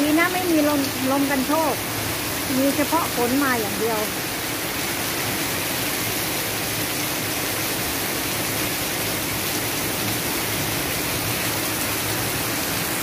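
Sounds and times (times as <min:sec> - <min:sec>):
heavy rain on corrugated roof: 0:00.0 - 0:13.0.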